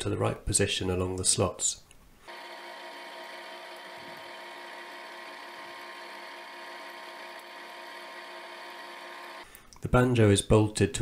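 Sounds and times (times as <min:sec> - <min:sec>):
machine hum: 0:02.3 - 0:09.4.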